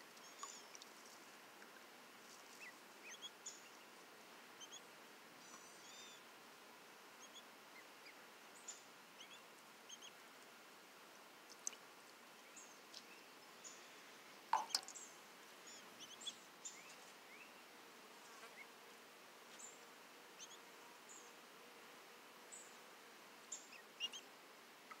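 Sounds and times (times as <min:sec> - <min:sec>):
ducklings peeping: 0:02.5 - 0:03.8, 0:04.6 - 0:04.8, 0:07.2 - 0:10.2, 0:14.6 - 0:15.0, 0:15.6 - 0:17.6, 0:20.4 - 0:20.6, 0:23.6 - 0:24.2.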